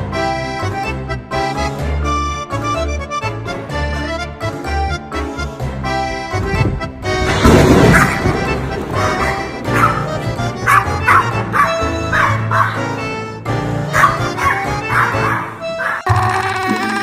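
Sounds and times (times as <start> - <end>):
background music: 0.0 - 17.0
small dog yipping: 14.0 - 16.1.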